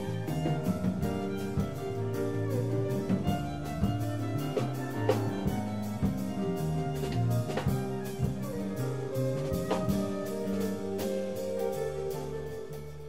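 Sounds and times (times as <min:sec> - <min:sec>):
bass line: 0:00.0 - 0:13.0.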